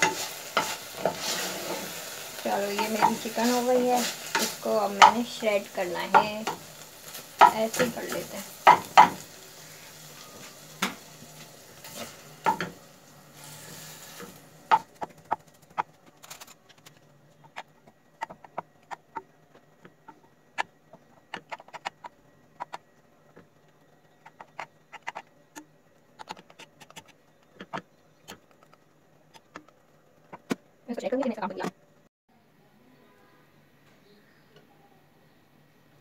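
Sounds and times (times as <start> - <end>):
faint sizzle: 0.0 - 17.4, 32.3 - 36.0.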